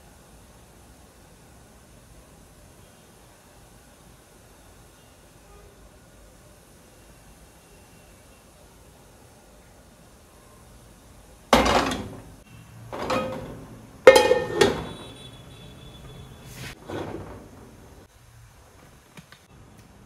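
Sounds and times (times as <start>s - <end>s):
frying pan knocking on stove grate: 11.5s - 12.3s, 12.9s - 15.2s.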